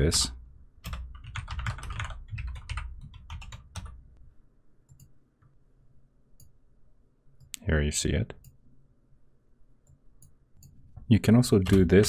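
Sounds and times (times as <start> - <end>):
typing on a computer keyboard: 0.8 - 4.0.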